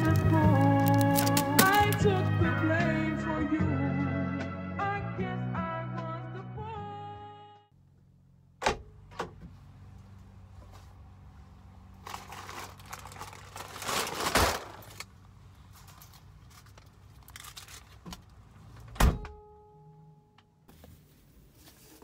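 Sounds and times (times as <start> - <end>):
plastic bag rustling and crinkling: 0.0 - 2.6, 11.9 - 18.0.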